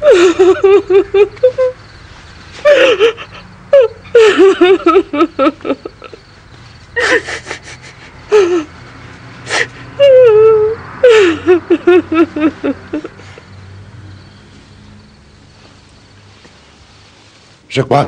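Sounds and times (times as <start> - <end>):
woman sobbing: 0.0 - 1.8, 2.6 - 6.3, 7.0 - 8.8, 9.5 - 13.5.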